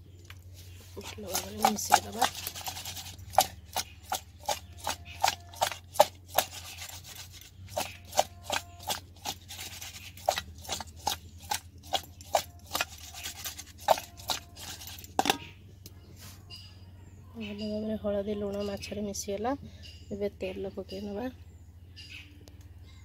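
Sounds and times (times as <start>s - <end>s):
low steady hum: 0.0s - 23.0s
fish clinking in a metal bowl: 1.0s - 15.5s.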